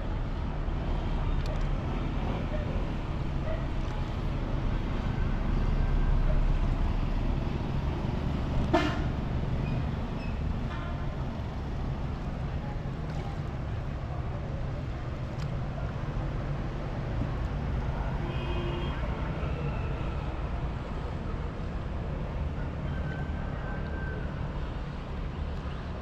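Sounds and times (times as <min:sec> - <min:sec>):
vehicle horn toot: 0:08.7 - 0:09.1.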